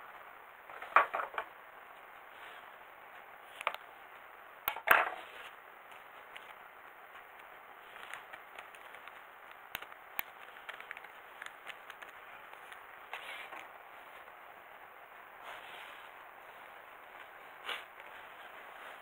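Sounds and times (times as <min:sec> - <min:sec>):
steady hiss: 0:00.0 - 0:19.0
plastic parts clicking and rustling: 0:04.7 - 0:13.7.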